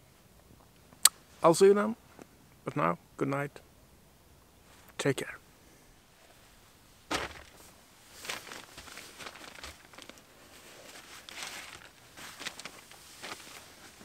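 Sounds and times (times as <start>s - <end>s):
groundsheet rustling and crinkling: 7.0s - 14.0s.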